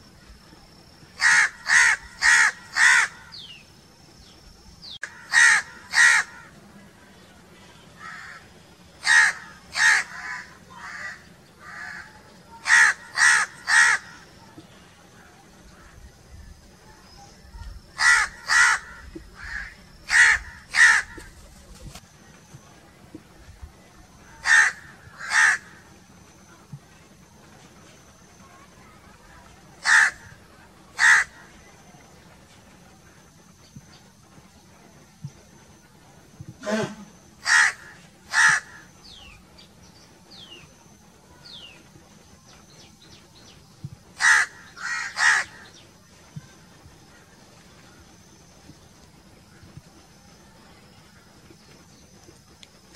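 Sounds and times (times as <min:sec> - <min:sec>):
crows cawing: 0:01.2 - 0:03.3, 0:05.0 - 0:06.5, 0:08.0 - 0:08.4, 0:09.0 - 0:14.2, 0:18.0 - 0:21.3, 0:24.4 - 0:25.8, 0:29.8 - 0:30.3, 0:31.0 - 0:31.4, 0:37.4 - 0:38.9, 0:44.2 - 0:45.7.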